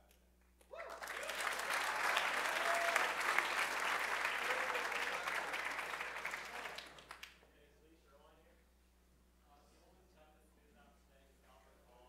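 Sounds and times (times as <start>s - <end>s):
audience applauding: 0.8s - 7.3s.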